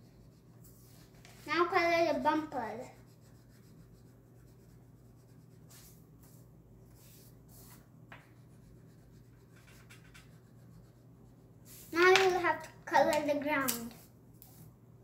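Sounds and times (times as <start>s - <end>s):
crayon scratching on paper: 2.2s - 12.0s.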